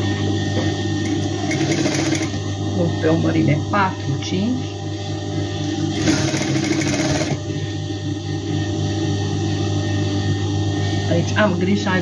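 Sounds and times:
sewing machine stitching: 1.0 - 2.4, 6.0 - 7.4.

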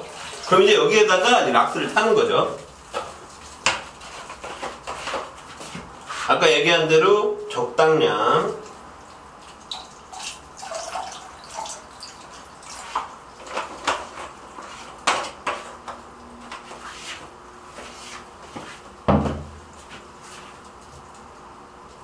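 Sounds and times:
water splashing in a bucket: 8.6 - 13.8
liquid pouring from a jug: 9.0 - 13.5
dull thump: 19.1 - 19.6.

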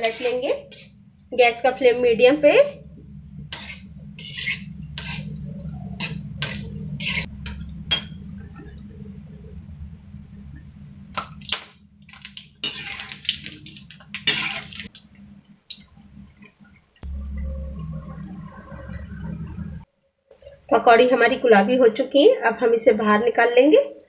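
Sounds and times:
spoon clinking and scraping pan: 0.0 - 1.0, 3.5 - 7.3
food frying in oil: 0.0 - 2.6, 11.1 - 18.0
low steady hum: 0.0 - 22.7.

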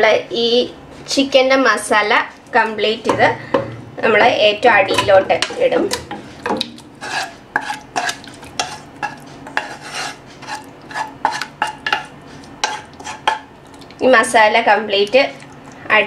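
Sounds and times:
spatula scraping pan: 3.0 - 13.5
spatula tapping pan: 3.0 - 13.5.

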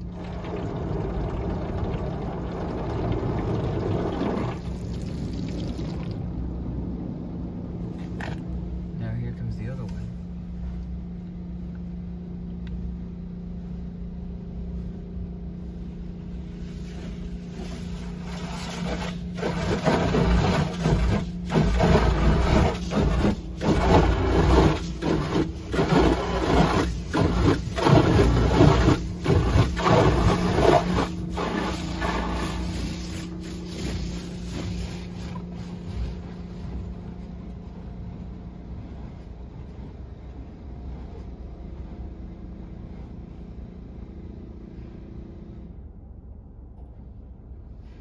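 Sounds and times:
steady low hum: 0.0 - 48.0
water spray drumming on car: 17.0 - 36.3.

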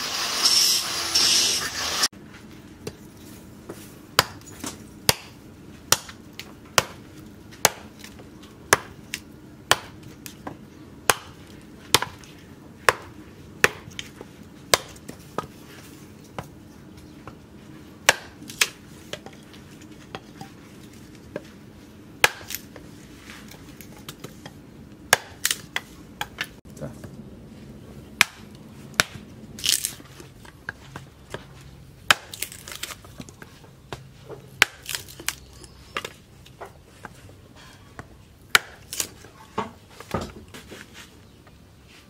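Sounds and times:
axe chopping wood: 4.2 - 15.5, 18.0 - 19.3, 22.2 - 22.8, 25.1 - 26.5, 28.2 - 30.0, 32.0 - 33.3, 33.9 - 36.2, 38.5 - 40.4.

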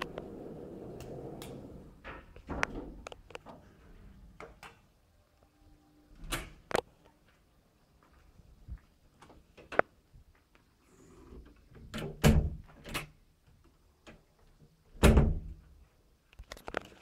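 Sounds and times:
door closing thud: 11.9 - 13.0.

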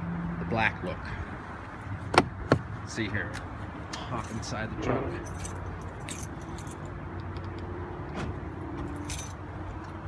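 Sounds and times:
keys jingling: 5.2 - 6.9, 8.9 - 10.0.

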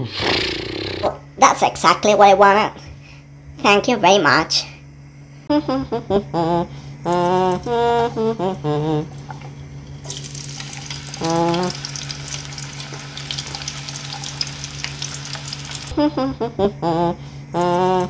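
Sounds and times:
person singing a tune: 5.5 - 9.2, 11.2 - 11.8, 16.0 - 18.0
fries sizzling in hot oil: 10.0 - 16.0.

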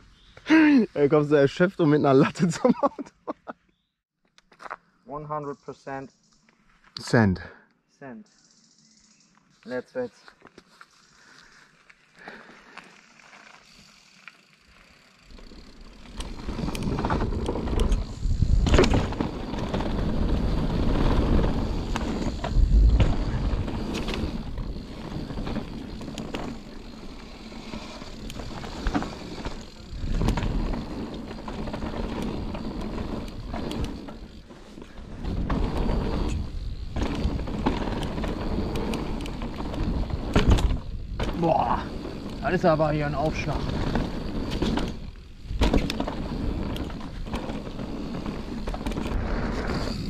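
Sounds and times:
bike rattling over rough ground: 9.5 - 50.0
bike tyres rumbling on dirt: 10.9 - 50.0.

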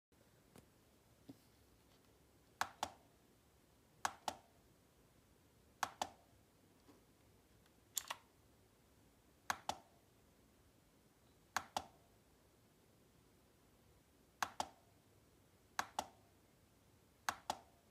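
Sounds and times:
mechanical keyboard key clicks: 8.0 - 8.2.

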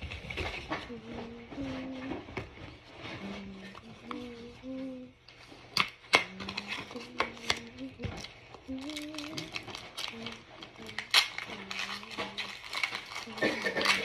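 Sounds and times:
person humming: 0.8 - 2.3, 3.1 - 5.2, 6.2 - 12.6
foil crinkling: 6.4 - 14.0
foil pack tearing: 8.8 - 14.0.

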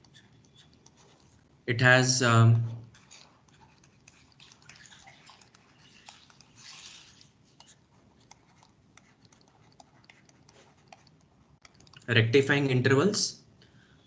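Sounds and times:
stylus tapping and scratching on tablet: 0.0 - 1.6, 2.6 - 12.1.

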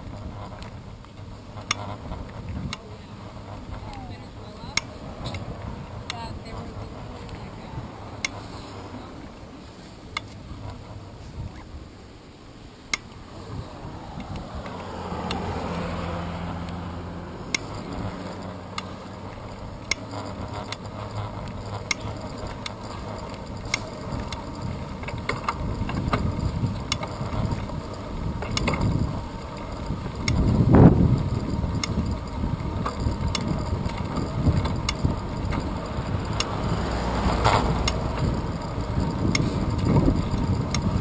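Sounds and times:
road noise rumble: 0.0 - 41.0
bicycle freewheel ticking: 12.9 - 41.0
sharp clicks of bike jolting: 17.5 - 41.0.

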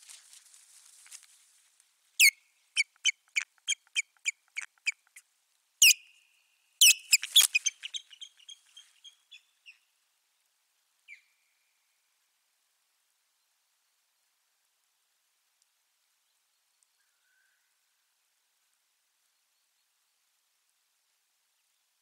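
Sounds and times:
osprey sharp high calls: 2.2 - 5.2, 5.8 - 6.2, 6.8 - 9.2.

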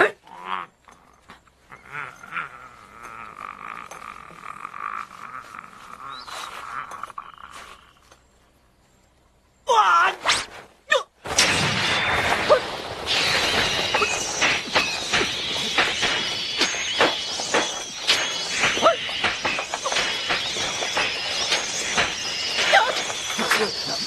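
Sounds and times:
fight clashes and impacts: 11.2 - 24.0.

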